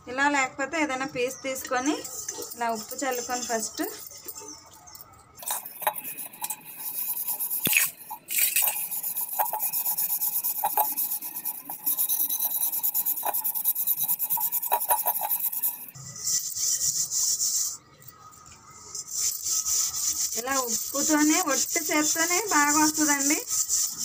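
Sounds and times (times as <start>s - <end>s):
gritty scrubbing of copper pot: 1.3s - 24.0s.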